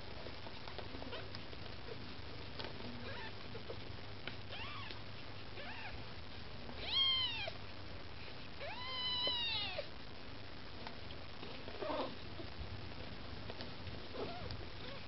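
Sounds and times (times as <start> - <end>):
kitten mewing: 5.6 - 6.0, 8.6 - 9.9.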